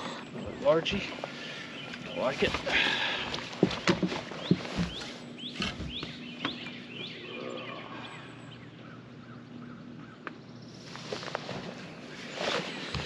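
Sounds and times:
faint steady hum: 0.0 - 13.0
bird chirping rising notes: 4.4 - 10.8.

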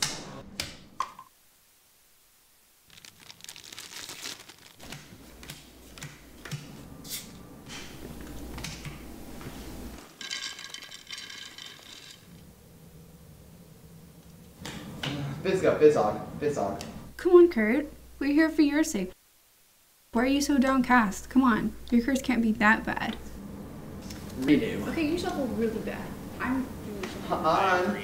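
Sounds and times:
snack mix poured into bowl: 2.9 - 4.8.

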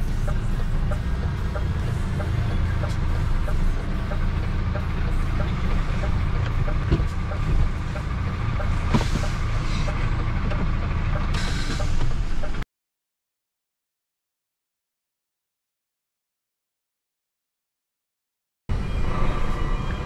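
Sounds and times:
truck engine running: 0.0 - 12.6.

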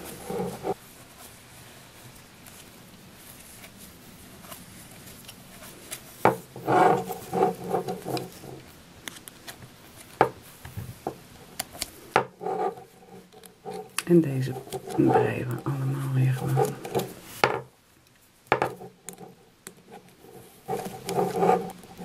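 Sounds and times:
loom hook rubbing yarn: 0.0 - 0.8, 6.3 - 8.7, 12.2 - 17.4, 18.6 - 22.0.

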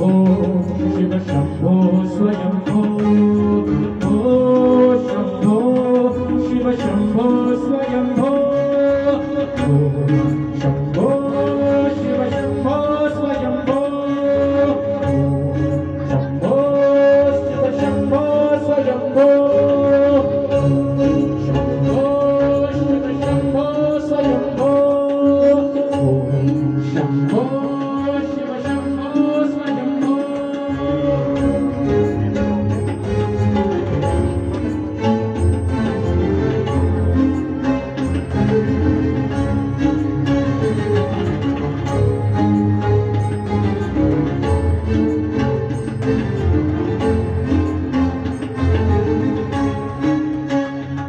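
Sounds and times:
man singing into microphone: 0.0 - 32.3
tabla drumming: 0.0 - 51.0.

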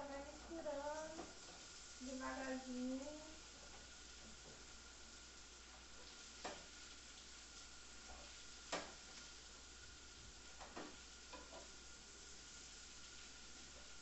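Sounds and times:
faint sizzle in frying pan: 0.0 - 14.0.

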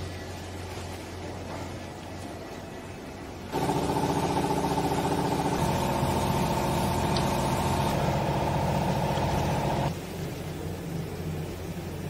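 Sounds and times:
hydraulic pump motor humming: 3.5 - 9.9.

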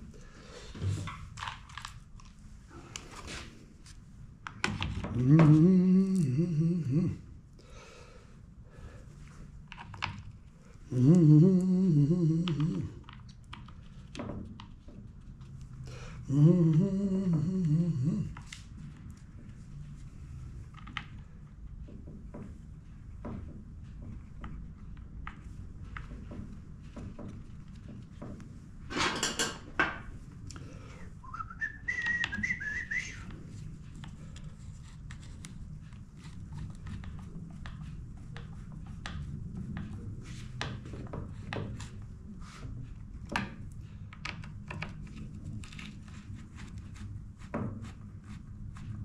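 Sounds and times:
low steady hum: 0.0 - 49.0
tools clattering on metal bench: 28.9 - 30.0
short rising whistle: 31.2 - 33.3.

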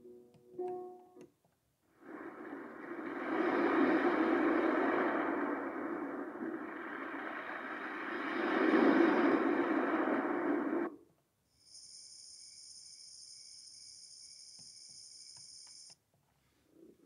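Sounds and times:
ocean waves recording: 1.9 - 11.0
crickets chirping recording: 11.5 - 16.0.

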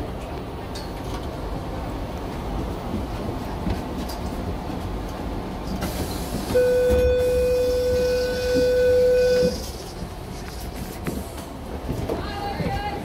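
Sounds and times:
train carriage rumble: 0.0 - 13.0
train door warning buzz: 6.5 - 9.7.

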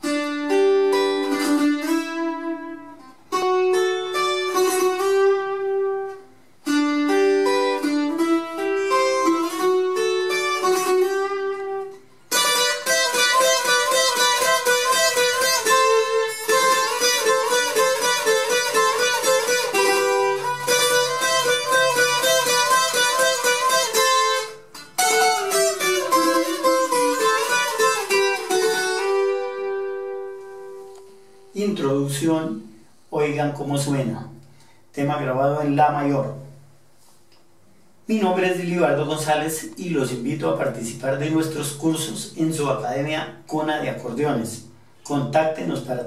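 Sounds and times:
small guitar picked melody: 0.0 - 31.6.

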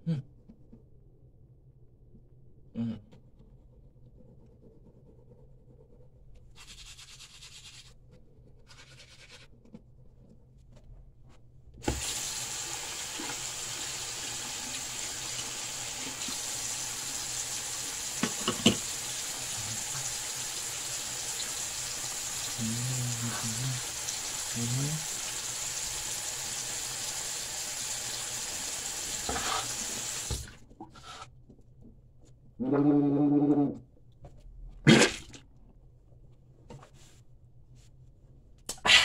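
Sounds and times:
toothbrush scrubbing teeth: 4.2 - 9.8, 22.5 - 25.5
tap running into sink: 11.8 - 12.2, 18.2 - 18.9, 30.2 - 30.5.

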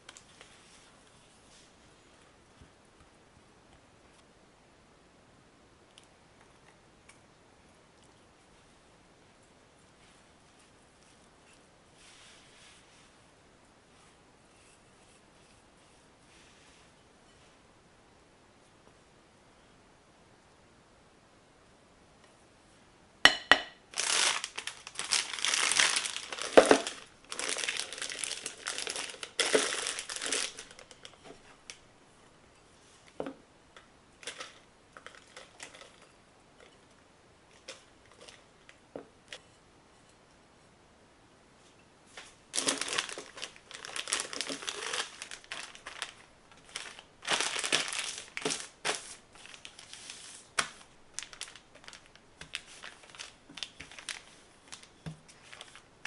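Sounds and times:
plastic bag crinkling: 23.9 - 31.8, 34.2 - 36.8, 42.5 - 56.0.

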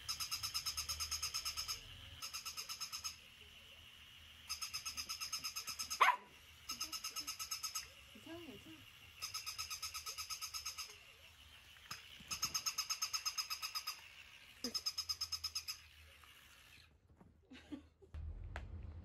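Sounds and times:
toy dog high-pitched pulsing beeps: 0.0 - 3.7, 4.4 - 15.9
low hum: 18.1 - 19.0.

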